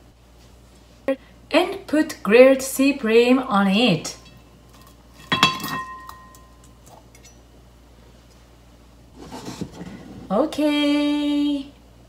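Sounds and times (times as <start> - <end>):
metal spatula clinking on pot: 4.2 - 7.4
soft handling noise: 9.1 - 10.4.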